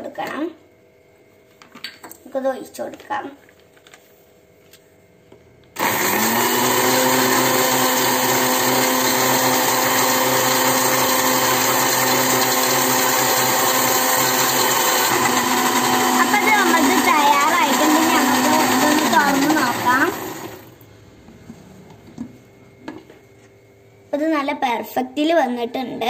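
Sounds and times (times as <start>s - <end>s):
blender motor running: 5.8s - 20.8s.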